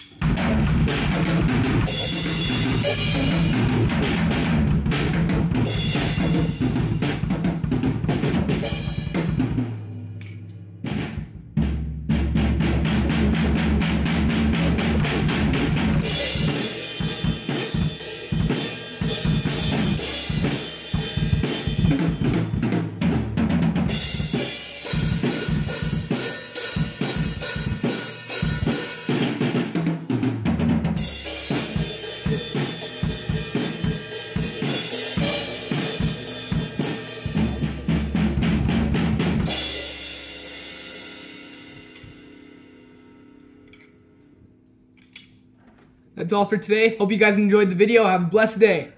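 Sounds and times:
cymbals: 0.0 - 7.4, 8.0 - 11.3, 12.6 - 23.2, 23.8 - 29.8, 31.0 - 44.3
drum kit groove: 0.0 - 43.1.

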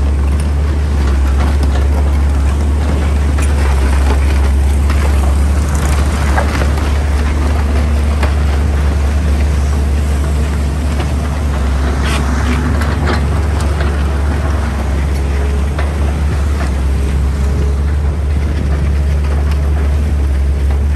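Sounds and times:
excavator diesel engine droning: 0.0 - 20.9
bucket scraping and knocking soil: 9.6 - 14.9.

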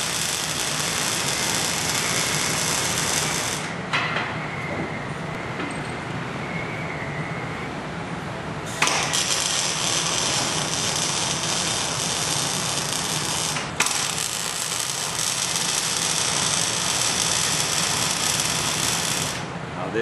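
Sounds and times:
welding arc crackling: 0.0 - 3.8, 8.8 - 19.5.

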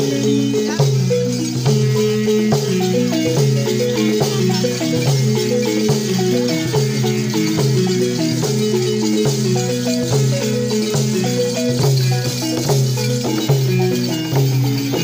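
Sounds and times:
wooden xylophones playing melody: 0.0 - 15.0.

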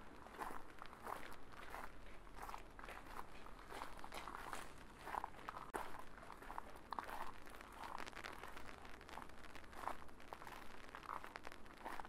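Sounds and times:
footsteps walking: 0.0 - 9.2.

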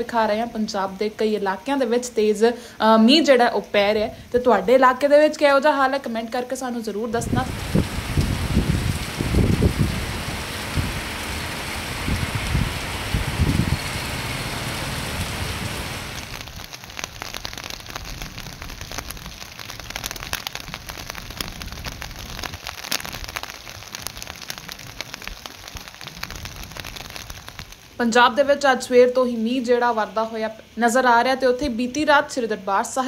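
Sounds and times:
raindrops ticking: 5.4 - 29.8
low rumbling: 7.2 - 16.4
heavy rain on road: 7.2 - 28.7.

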